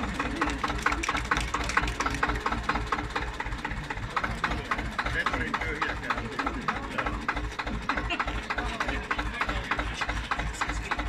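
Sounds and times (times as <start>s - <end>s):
diesel tractor engine idling: 0.0s - 11.0s.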